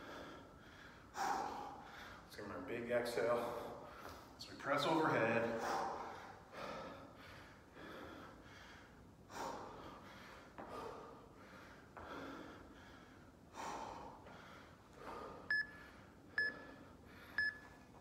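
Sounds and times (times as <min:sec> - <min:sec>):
person breathing hard: 0:00.0 - 0:02.3, 0:05.5 - 0:17.7
interval timer beeps: 0:15.5 - 0:15.8, 0:16.4 - 0:16.6, 0:17.4 - 0:17.7.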